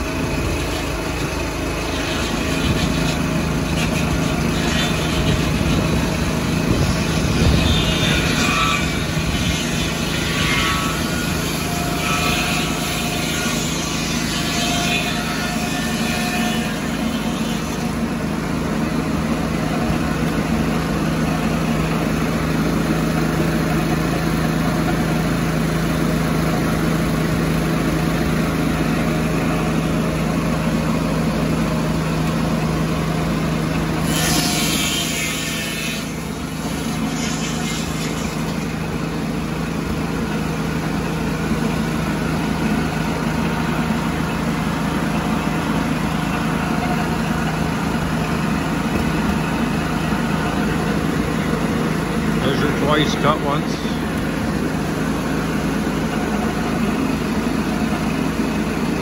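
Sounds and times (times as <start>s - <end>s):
sawmill cutting log: 0.0s - 59.0s.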